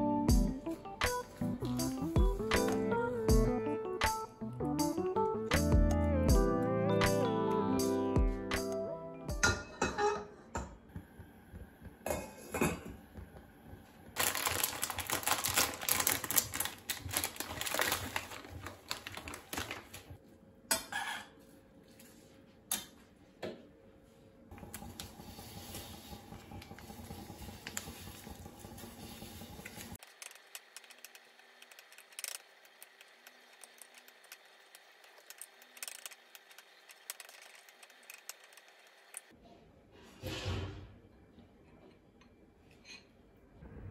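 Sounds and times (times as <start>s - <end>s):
cookware and utensils clattering: 9.4s - 10.8s, 20.7s - 21.4s.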